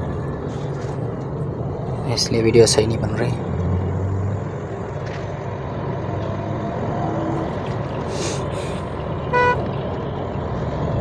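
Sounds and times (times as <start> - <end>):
car engine and tyre noise: 0.0 - 11.0.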